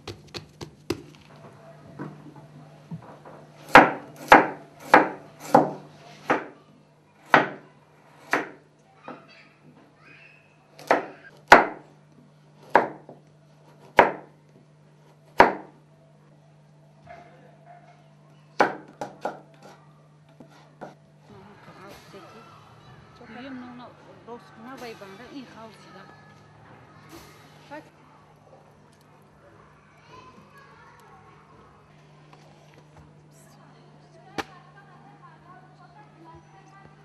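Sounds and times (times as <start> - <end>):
knife chopping on wooden board: 3.6 - 6.5, 10.8 - 11.8, 12.6 - 13.2, 13.8 - 14.3, 15.4 - 15.7.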